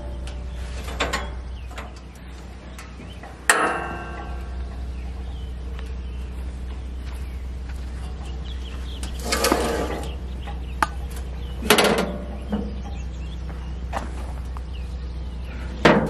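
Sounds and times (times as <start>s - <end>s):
steady low hum: 0.0s - 16.0s
metal cover rattling clank: 0.8s - 2.0s, 3.5s - 4.9s, 11.6s - 12.9s
metal cover banging shut: 3.5s - 4.8s, 11.6s - 12.8s.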